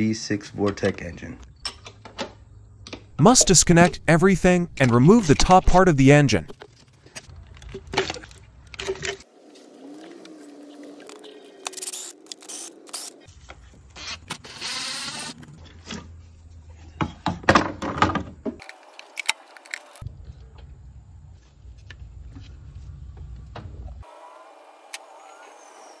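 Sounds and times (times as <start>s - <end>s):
tools and engine parts clicking: 1.4s - 3.2s, 6.5s - 9.3s.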